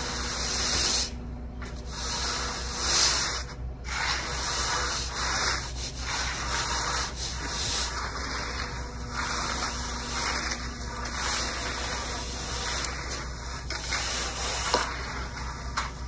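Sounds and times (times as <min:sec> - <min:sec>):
tools scraping wet concrete: 0:00.0 - 0:16.0.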